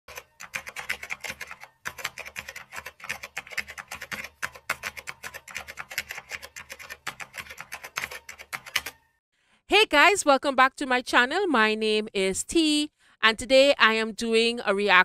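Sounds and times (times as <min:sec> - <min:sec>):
keyboard typing clicks: 0:00.1 - 0:09.0.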